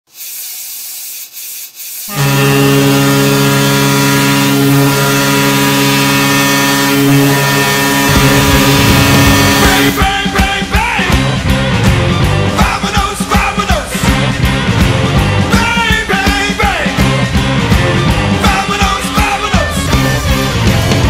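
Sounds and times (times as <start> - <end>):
steady hiss: 0.1 - 2.1
air horn long blast: 2.1 - 10.0
rock music drums: 7.0 - 21.0.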